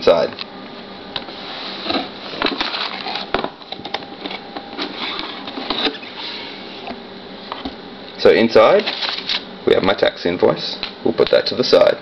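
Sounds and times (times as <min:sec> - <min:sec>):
cardboard scraping and rustling: 0:01.3 - 0:06.9, 0:08.8 - 0:09.4.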